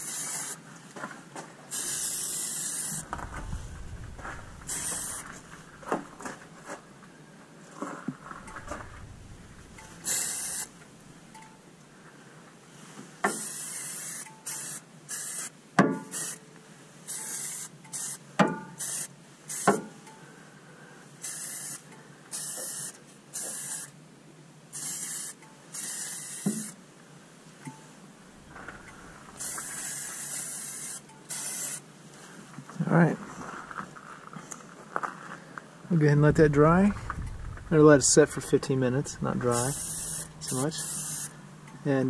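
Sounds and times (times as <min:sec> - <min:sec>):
aerosol spray can hissing: 0:00.0 - 0:00.6, 0:01.7 - 0:03.1, 0:04.6 - 0:05.4, 0:09.8 - 0:10.8, 0:13.3 - 0:15.5, 0:16.1 - 0:16.4, 0:17.1 - 0:18.2, 0:18.8 - 0:19.8, 0:21.2 - 0:23.9, 0:24.8 - 0:26.8, 0:29.4 - 0:31.8, 0:39.5 - 0:41.4.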